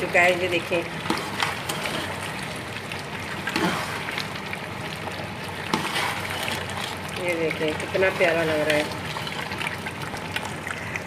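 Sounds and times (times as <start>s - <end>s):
meat sizzling in a pot: 0.0s - 11.0s
metal spoon stirring pot: 1.0s - 2.4s, 5.6s - 9.9s.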